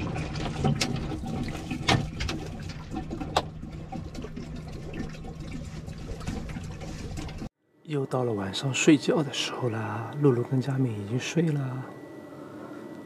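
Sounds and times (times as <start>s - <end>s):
water pouring and glugging: 0.0s - 7.5s.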